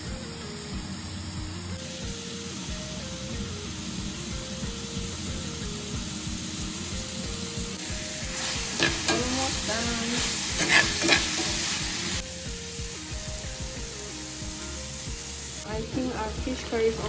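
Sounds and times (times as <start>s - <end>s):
faint background music: 0.0s - 17.0s
food sizzling in oil: 0.0s - 17.0s
metal ladle scraping a pan: 8.4s - 9.6s, 10.2s - 11.8s.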